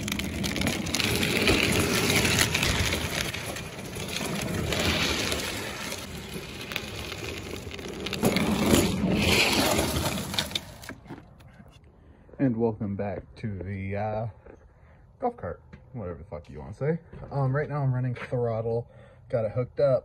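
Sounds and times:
plastic wheels scraping on asphalt: 0:00.0 - 0:11.8.

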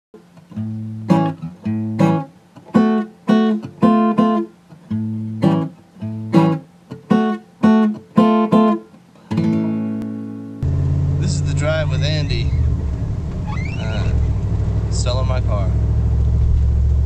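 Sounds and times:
acoustic guitar strumming chords: 0:00.2 - 0:15.6.

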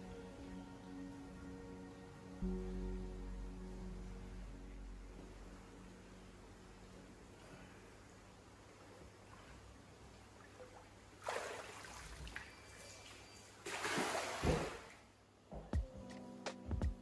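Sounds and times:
water splashing and running off: 0:10.6 - 0:12.5, 0:13.6 - 0:15.0
fish splashing into pond: 0:11.2 - 0:12.5, 0:13.6 - 0:15.0.

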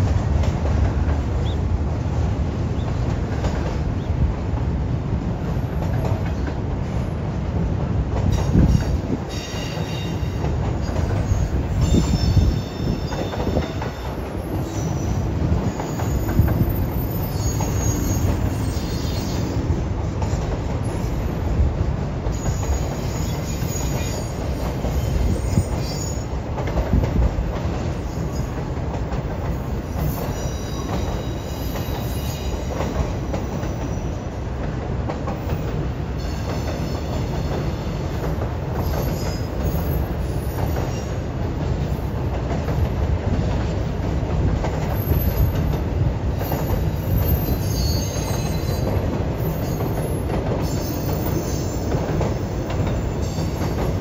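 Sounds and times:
train wheels rumbling on rail: 0:00.0 - 0:54.0
high-pitched wheel squeals: 0:15.9 - 0:19.6, 0:30.0 - 0:32.7, 0:47.1 - 0:49.9.

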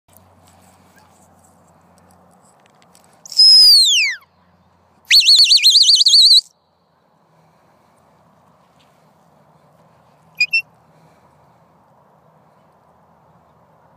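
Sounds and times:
long falling whistle: 0:03.3 - 0:04.2, 0:05.1 - 0:06.5
rising warbling whistle: 0:03.3 - 0:04.2, 0:05.1 - 0:06.5.

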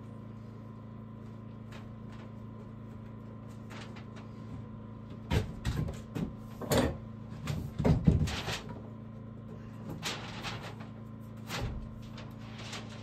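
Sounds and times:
steady low hum: 0:00.0 - 0:13.0
irregular knocks and clunks: 0:05.1 - 0:08.6.

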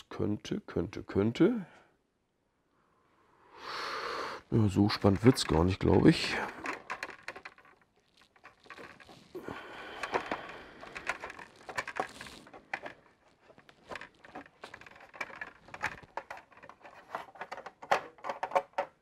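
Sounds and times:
plastic parts scraping rustle: 0:04.7 - 0:19.0.

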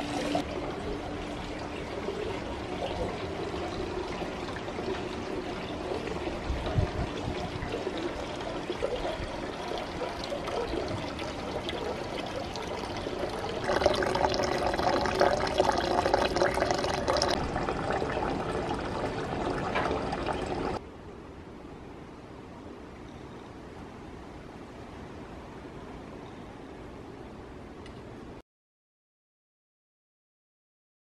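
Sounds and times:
water pouring into a bath: 0:00.0 - 0:20.8
faint steady hiss: 0:00.0 - 0:28.4
close splashing pour: 0:02.2 - 0:20.8.

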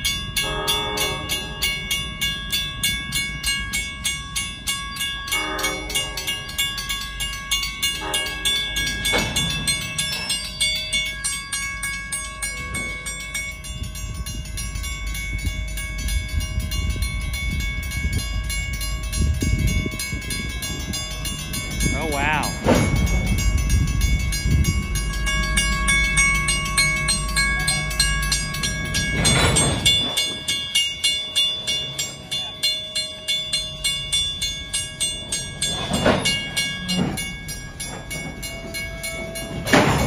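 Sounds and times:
freight train rumble: 0:00.0 - 0:40.0
railroad crossing bells ringing: 0:00.0 - 0:40.0
locomotive horn blasts: 0:00.4 - 0:01.6, 0:05.4 - 0:06.3, 0:08.0 - 0:08.6.

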